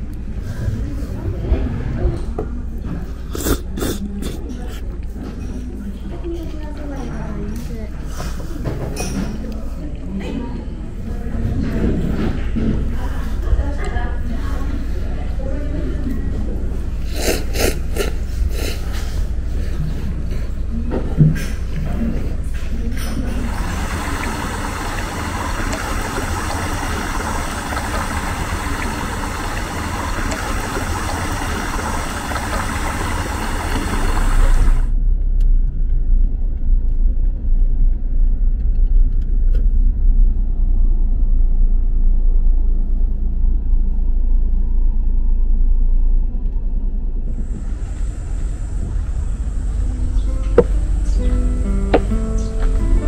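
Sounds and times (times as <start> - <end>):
car engine and tyre rumble: 33.9 - 52.1.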